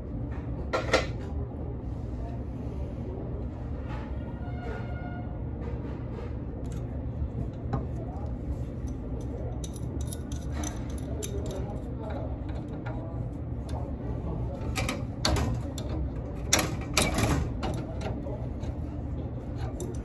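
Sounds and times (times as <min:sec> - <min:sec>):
steady low hum: 0:00.0 - 0:20.0
wrench clinking on metal fitting: 0:09.2 - 0:11.7.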